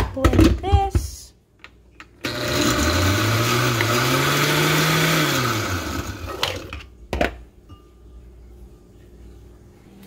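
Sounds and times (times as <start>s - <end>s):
blender motor running: 2.2s - 6.7s.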